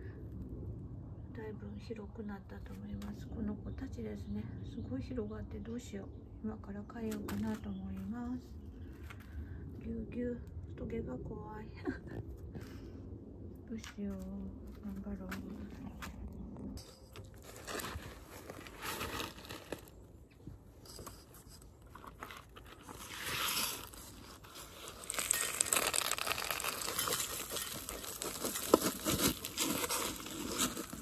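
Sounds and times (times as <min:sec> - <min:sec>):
soil rustling and crunching: 0:14.1 - 0:31.0.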